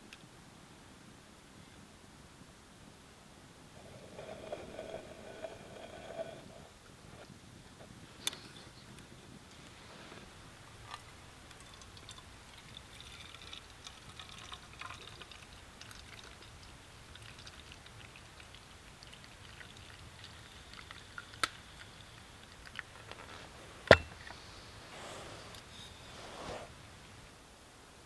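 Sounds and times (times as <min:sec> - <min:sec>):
coffee pouring into a mug: 0:10.7 - 0:22.9.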